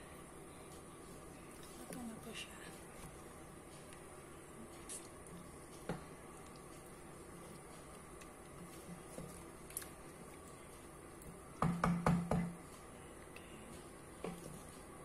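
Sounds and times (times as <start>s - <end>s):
faint room hiss: 0.0s - 15.0s
wooden spatula tapping a pot: 11.6s - 12.6s.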